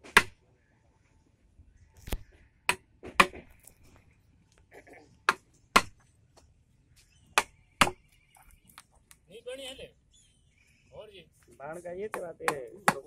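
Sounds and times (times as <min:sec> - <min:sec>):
hammer striking chisel: 0:12.1 - 0:13.0.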